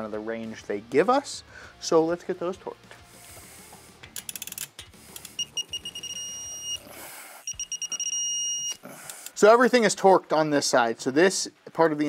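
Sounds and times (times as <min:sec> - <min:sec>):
ratchet clicks: 0:04.0 - 0:06.3
torque wrench beeping: 0:04.1 - 0:09.4.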